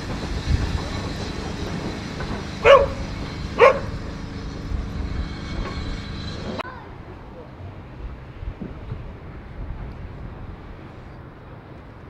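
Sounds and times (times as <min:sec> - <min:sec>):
train rumble: 0:00.0 - 0:12.0
dog barking: 0:02.6 - 0:03.0, 0:03.6 - 0:03.9.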